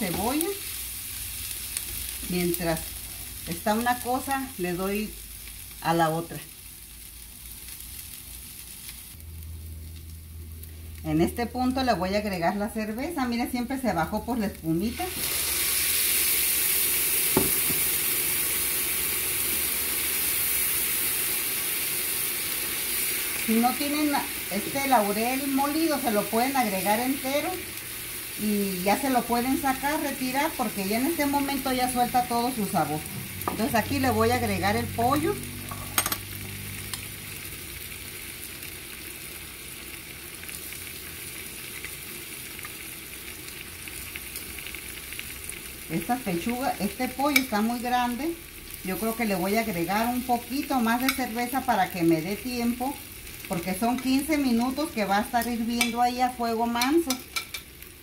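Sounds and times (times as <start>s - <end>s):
liquid sizzling in a frying pan: 0.0s - 58.0s
knock: 17.4s - 17.9s.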